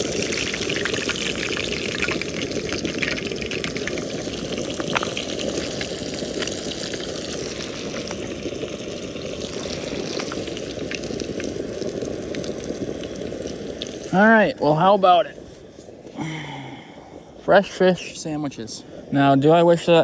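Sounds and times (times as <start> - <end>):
crackling pops: 0.0 - 14.7
fish frying in hot oil: 0.0 - 15.4.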